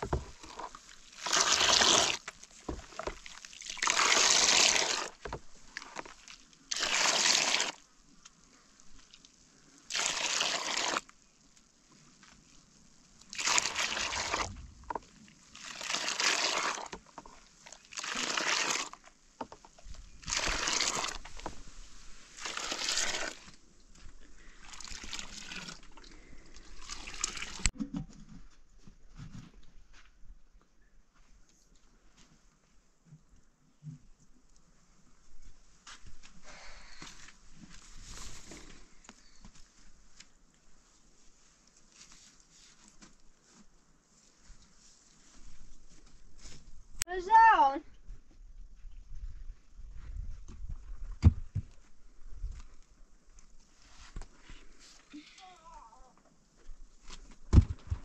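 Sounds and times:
milk splashing as poured: 6.2 - 7.8, 9.9 - 11.0, 13.3 - 14.6, 15.6 - 17.0, 17.8 - 19.0, 20.2 - 21.4, 24.6 - 27.7.

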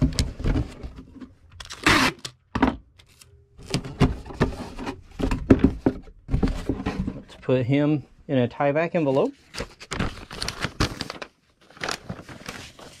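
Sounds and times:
packing tape ripping off roll: 1.6 - 2.4
cardboard box scraping and knocking: 3.8 - 7.3.

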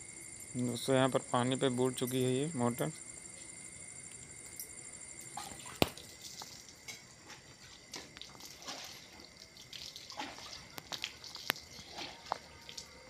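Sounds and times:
faint steady high tone: 0.0 - 5.7.

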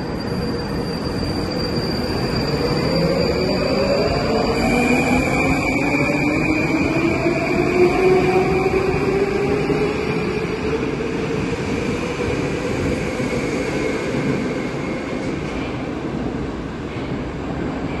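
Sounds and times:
train wheels rumbling on rail: 0.0 - 18.0.

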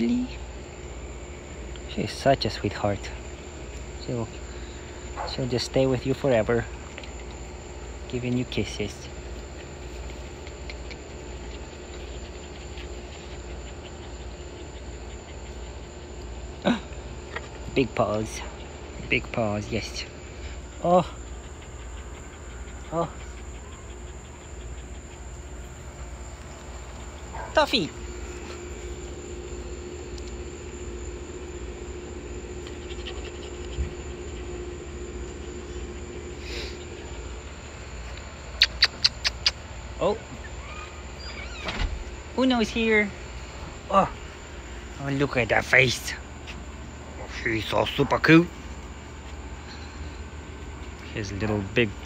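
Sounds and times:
insects chirping: 0.0 - 52.0
low hum: 0.0 - 52.0.

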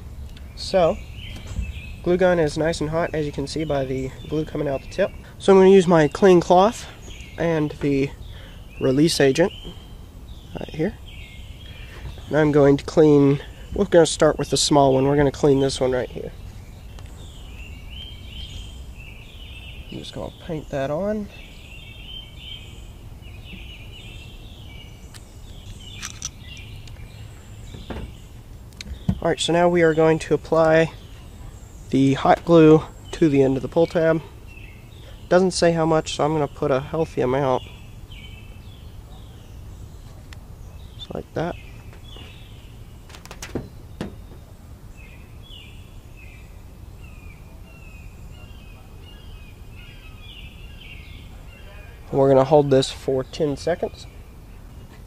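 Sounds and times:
birds chirping: 0.0 - 55.0
low outdoor rumble: 0.0 - 55.0
light clicks of small parts: 25.1 - 27.0.

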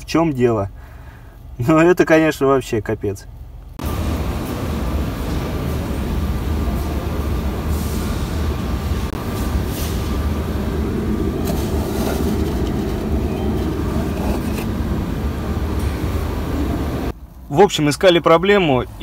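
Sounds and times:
low rumble: 3.6 - 17.2.

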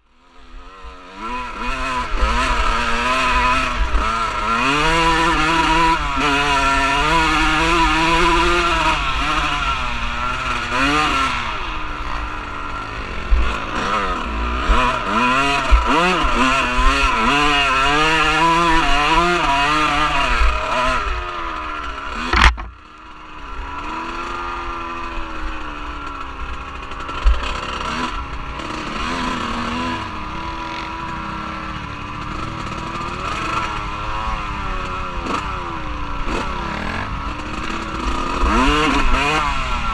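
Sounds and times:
off-road vehicle engine revving: 0.2 - 39.9
sharp click: 22.3 - 22.8.

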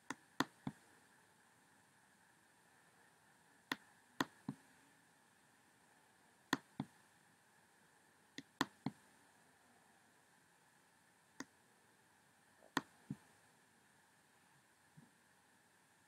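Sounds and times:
faint steady hiss: 0.0 - 16.0
mouse button clicks: 0.1 - 0.8, 8.4 - 9.0.

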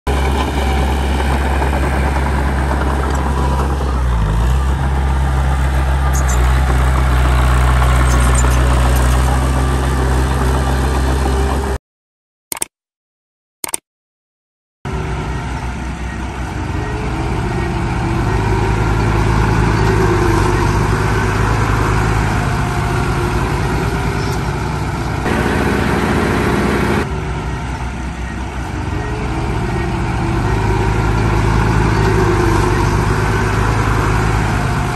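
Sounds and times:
heavy diesel engines droning: 0.1 - 11.8, 14.9 - 34.9
short clicks: 12.5 - 12.8, 13.6 - 13.8.

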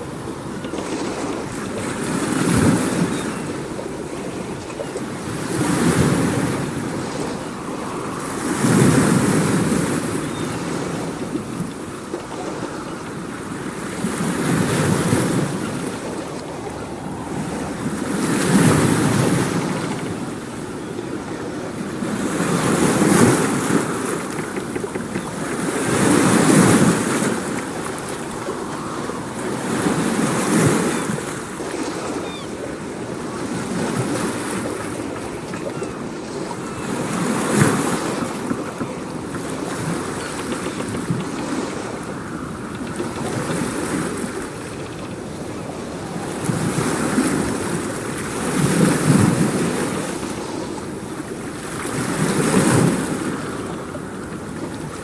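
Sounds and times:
waves washing in: 0.0 - 55.0.

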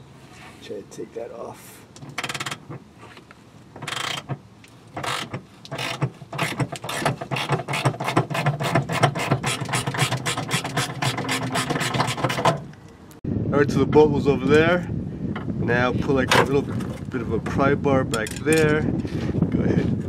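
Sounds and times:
hand ratchet clicking: 2.0 - 2.7, 3.8 - 12.6.

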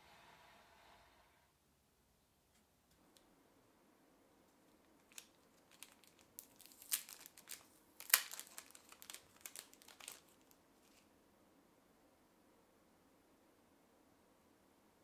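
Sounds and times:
plastic packaging crinkling: 4.7 - 11.1.

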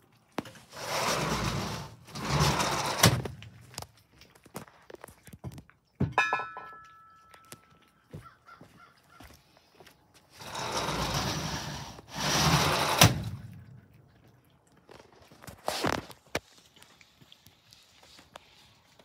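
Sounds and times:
cats chewing and licking: 0.0 - 0.8, 3.3 - 6.1, 6.7 - 10.4, 13.4 - 19.0
ringing tinkle: 6.2 - 7.6.

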